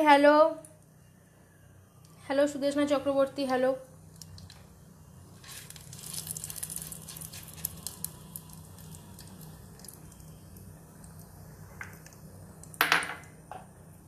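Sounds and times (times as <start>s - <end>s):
spices sizzling and crackling in oil: 3.2s - 13.4s.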